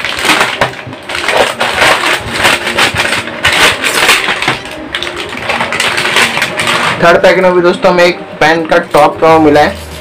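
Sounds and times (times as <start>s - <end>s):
snacks rattling onto table: 0.0s - 7.0s
scissors cutting packet: 0.0s - 7.9s
plastic snack packet crinkling: 0.0s - 9.4s.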